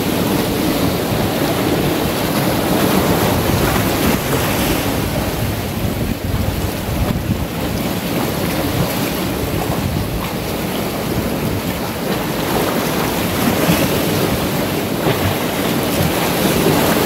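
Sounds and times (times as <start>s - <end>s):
sea surf washing over rocks: 0.0s - 17.0s
wind: 0.0s - 17.0s.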